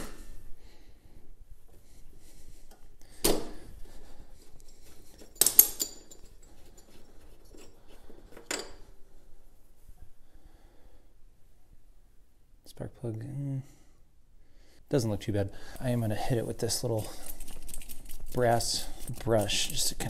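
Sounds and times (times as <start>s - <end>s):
pliers clinking on metal: 4.6s - 8.8s, 16.8s - 20.0s.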